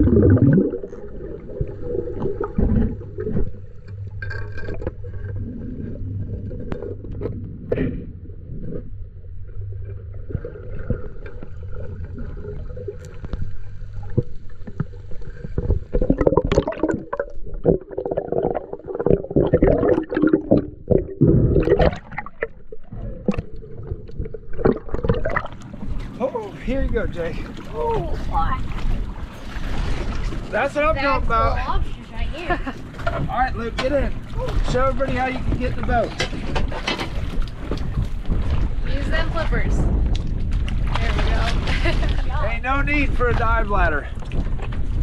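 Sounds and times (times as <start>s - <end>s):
low steady hum: 0.0s - 45.0s
underwater gurgling and sloshing: 0.0s - 45.0s
knocks and scrapes: 34.6s - 38.8s.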